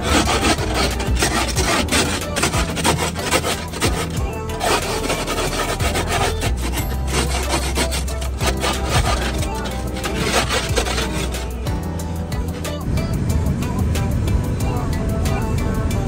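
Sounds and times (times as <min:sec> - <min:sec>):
snow brush scraping windshield: 0:00.0 - 0:12.8.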